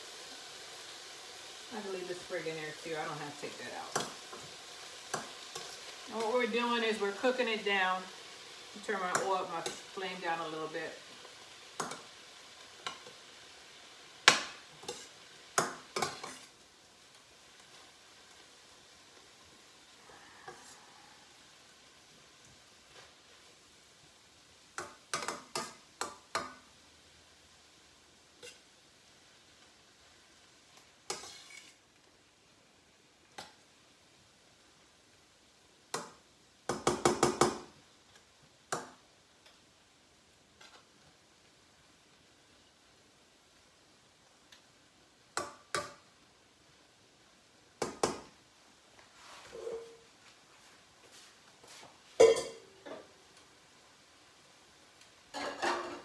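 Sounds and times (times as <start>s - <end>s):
vegetables sizzling: 0.0s - 56.0s
utensil scraping a frying pan: 14.8s - 15.2s, 16.0s - 16.6s, 20.0s - 21.0s, 28.4s - 28.7s, 31.1s - 31.8s, 49.1s - 50.1s, 55.3s - 56.0s.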